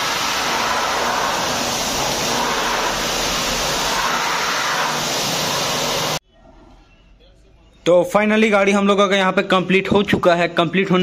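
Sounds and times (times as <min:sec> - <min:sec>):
pressure washer spraying water: 0:00.0 - 0:06.2.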